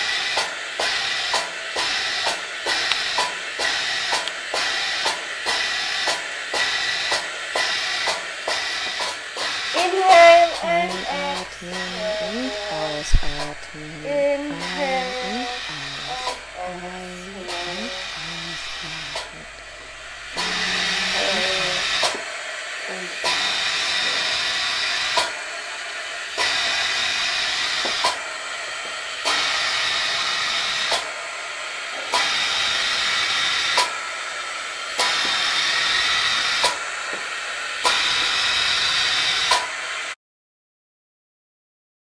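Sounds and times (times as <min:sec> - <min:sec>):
hissing airflow through breathing hose: 0:00.0 - 0:40.2
sharp machine click: 0:00.3 - 0:16.7, 0:23.2 - 0:25.4.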